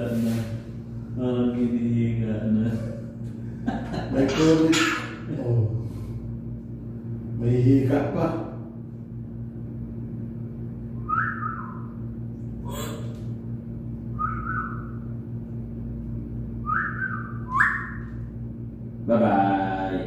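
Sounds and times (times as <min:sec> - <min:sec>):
low electrical hum: 0:00.0 - 0:20.0
bird whistling: 0:11.0 - 0:12.0, 0:14.2 - 0:15.1, 0:16.6 - 0:18.2.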